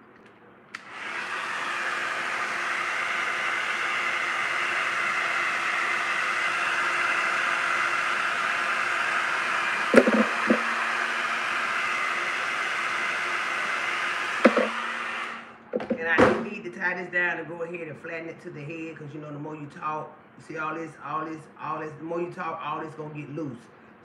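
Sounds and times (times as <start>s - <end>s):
hair dryer blowing: 0.8s - 16.6s.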